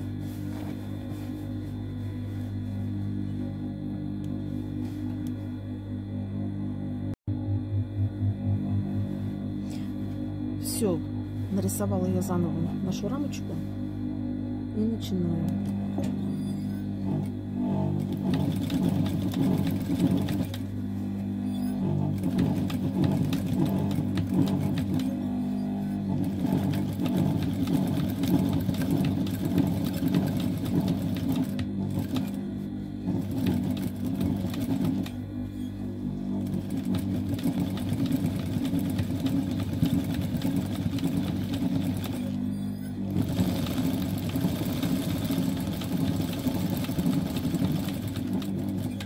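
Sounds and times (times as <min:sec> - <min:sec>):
sewing machine running fast: 0:17.0 - 0:20.8, 0:21.7 - 0:35.2, 0:36.1 - 0:49.0.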